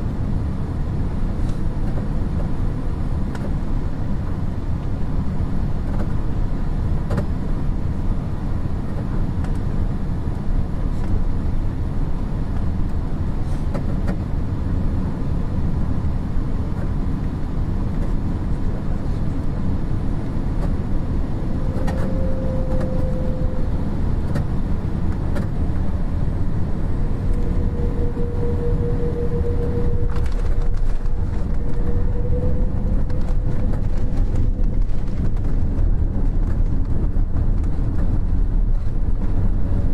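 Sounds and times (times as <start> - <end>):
aircraft cabin engine rumble: 0.0 - 39.9
thin whine: 20.5 - 36.2.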